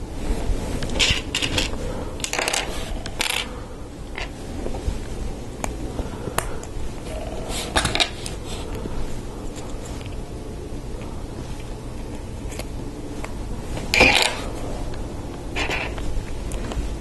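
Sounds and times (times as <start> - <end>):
plastic parts clicking and scraping: 0.8 - 3.5.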